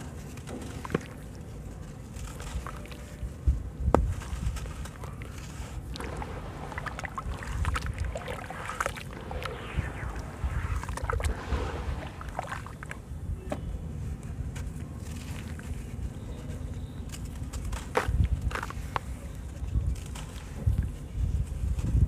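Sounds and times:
hands stirring muddy water: 0.0s - 3.4s, 4.0s - 13.1s
wet chunks splashing into water: 4.3s - 13.0s
water dripping: 5.9s - 13.0s.

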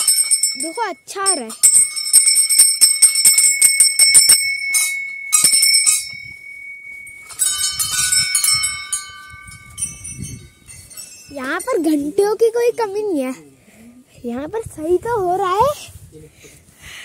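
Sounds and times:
bell struck rapidly: 0.0s - 12.1s
lower-pitched bell clanging: 0.0s - 13.2s.

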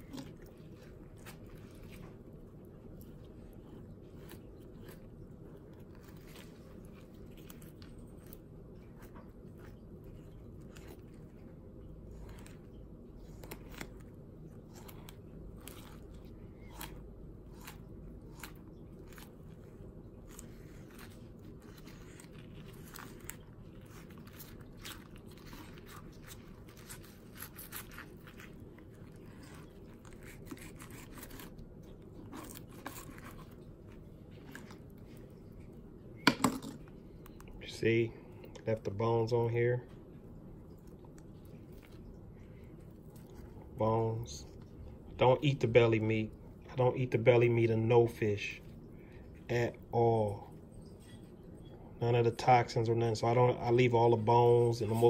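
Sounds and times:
steady low background hum: 0.0s - 55.0s
knife cutting fish fillet: 20.3s - 33.7s.

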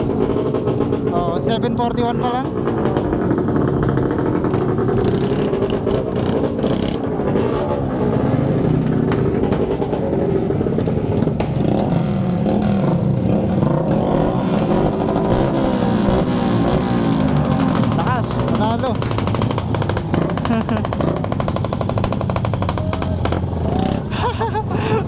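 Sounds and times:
motorcycle engines revving: 0.0s - 25.0s.

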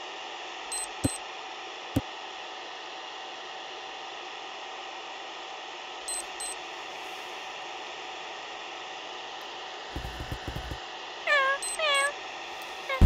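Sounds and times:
short electronic beeps: 0.7s - 1.2s.

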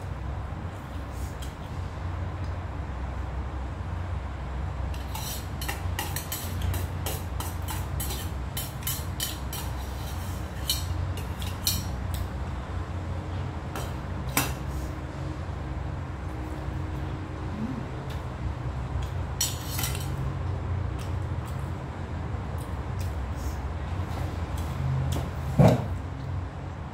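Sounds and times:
low hum: 16.2s - 18.6s.

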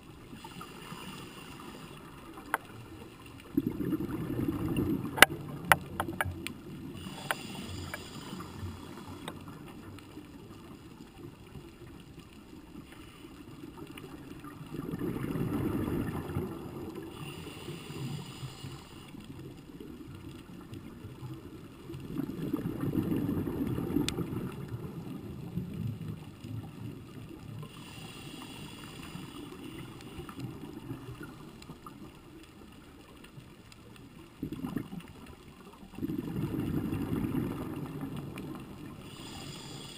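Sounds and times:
exhaled bubbles rumbling: 2.0s - 12.0s, 14.0s - 17.3s, 19.3s - 28.1s, 34.1s - 39.6s
regulator breathing underwater: 6.9s - 9.5s, 17.0s - 19.2s, 27.6s - 30.4s, 39.0s - 39.9s.

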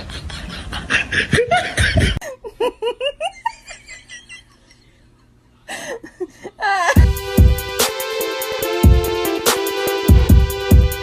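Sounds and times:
person laughing: 0.0s - 7.2s.

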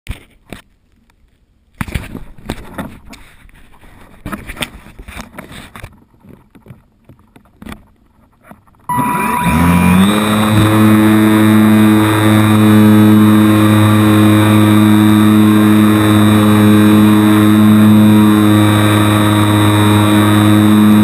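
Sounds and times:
electric motor and propeller: 8.8s - 21.0s.

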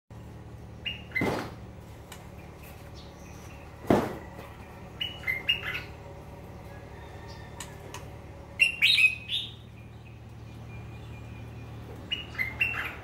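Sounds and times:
bird chirps: 0.6s - 1.4s, 4.4s - 13.0s.

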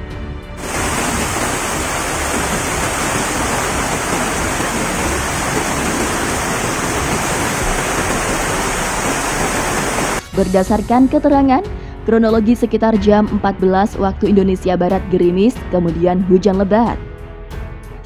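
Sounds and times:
flood water rushing: 0.6s - 10.2s.

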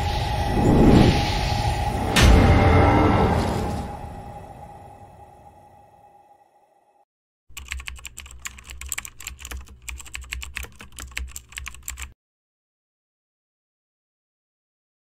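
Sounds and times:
keyboard typing clicks: 7.5s - 12.2s.

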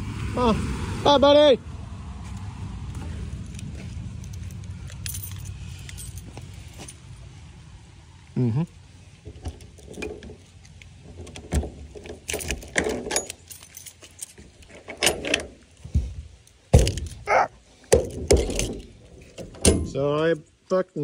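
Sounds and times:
keys jangling: 4.2s - 7.0s, 12.2s - 15.4s
loud knocks: 16.7s - 17.2s.

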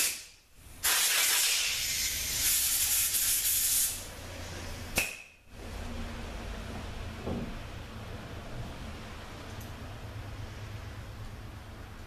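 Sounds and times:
pressurized jet hissing: 0.8s - 4.0s.

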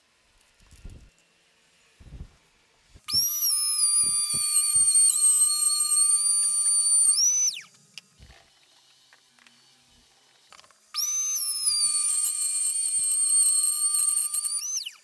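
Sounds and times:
trim router whining: 3.0s - 7.6s.

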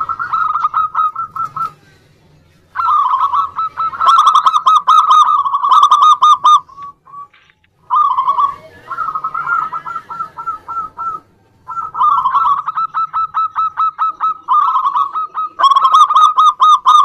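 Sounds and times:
dove cooing: 0.0s - 2.0s, 2.7s - 17.0s.

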